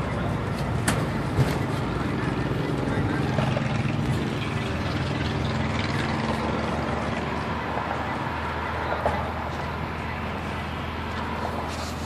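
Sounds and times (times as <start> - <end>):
diesel bus engine running: 0.0 - 12.0
road and cabin hum: 0.0 - 12.0.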